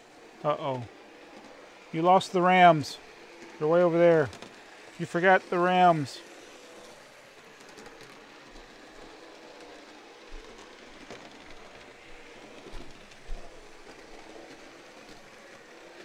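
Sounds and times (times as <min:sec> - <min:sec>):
model train wheels rolling on rail: 0:00.0 - 0:16.0.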